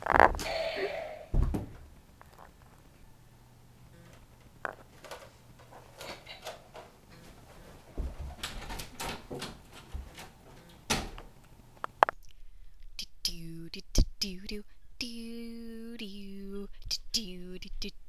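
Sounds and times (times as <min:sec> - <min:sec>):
soft knocks and thuds: 0:01.3 - 0:02.0, 0:08.0 - 0:08.7
rustling of people moving: 0:03.8 - 0:11.9.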